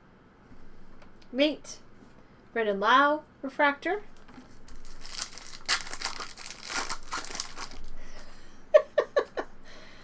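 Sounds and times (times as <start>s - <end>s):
foil wrapper crinkling and tearing: 4.6s - 8.0s.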